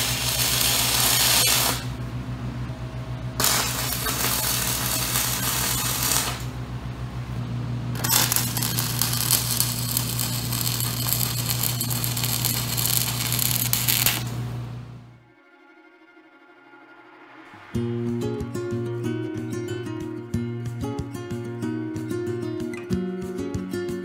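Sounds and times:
welding arc crackling and sizzling: 0.0 - 2.0, 3.4 - 6.7, 7.9 - 14.8
welding machine low hum: 0.0 - 15.2.

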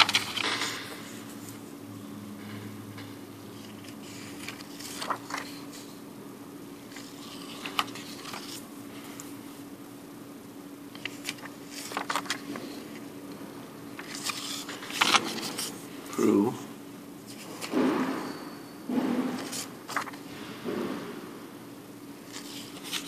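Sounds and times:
paper banknotes rustling: 0.0 - 1.6, 3.6 - 6.0, 6.8 - 9.4, 10.9 - 13.1, 13.9 - 16.3, 19.3 - 20.4, 22.2 - 23.0
steady low hum: 0.0 - 23.0.

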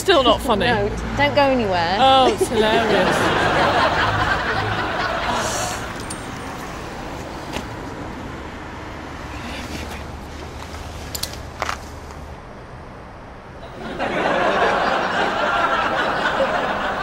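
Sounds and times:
street traffic hum: 0.0 - 17.0
audience laughter: 2.0 - 6.0, 13.6 - 17.0.

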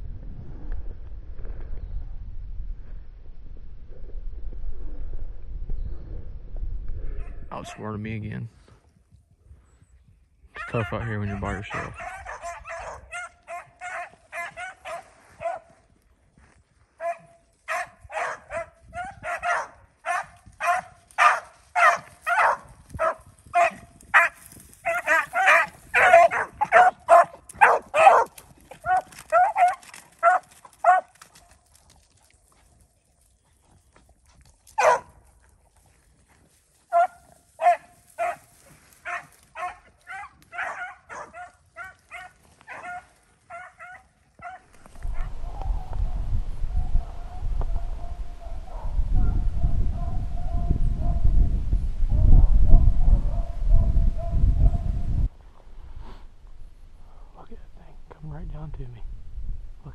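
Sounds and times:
beagles baying: 10.5 - 15.7, 17.0 - 31.1, 34.8 - 35.1, 36.9 - 44.7.

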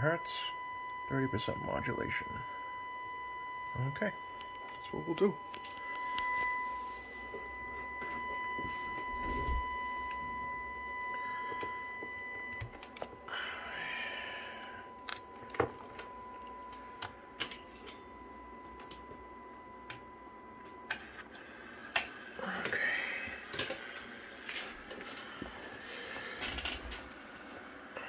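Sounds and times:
faint higher overtone: 0.0 - 17.0
steady test tone: 0.0 - 20.9.

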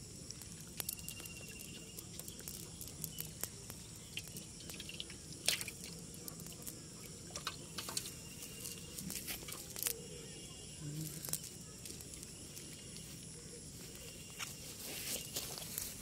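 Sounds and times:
wet net crackling and clicking: 0.3 - 10.0, 11.1 - 12.7.

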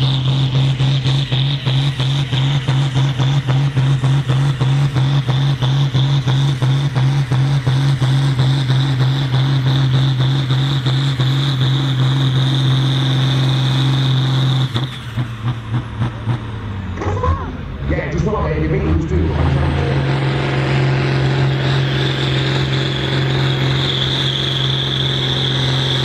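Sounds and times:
tractor diesel engine under load: 0.0 - 26.0
turbo whine: 17.0 - 26.0.

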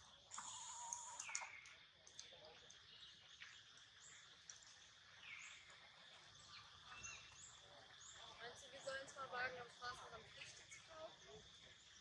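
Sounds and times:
high insect drone: 0.0 - 1.6.

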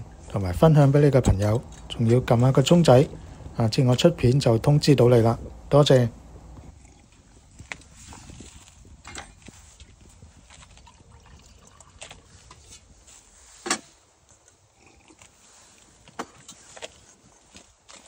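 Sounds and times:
water trickling into mug: 10.6 - 12.5.

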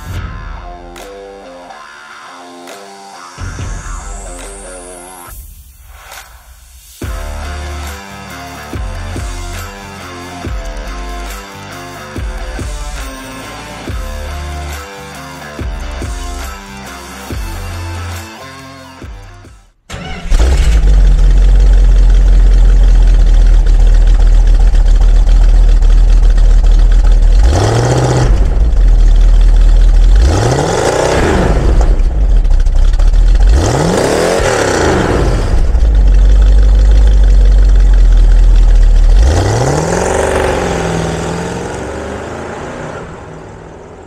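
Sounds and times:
car engine idling and revving: 0.0 - 44.0
car pulling away: 19.9 - 44.0.

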